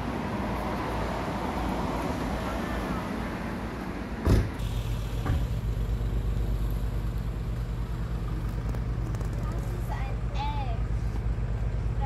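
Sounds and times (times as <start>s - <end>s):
engine idling hum: 4.6s - 12.0s.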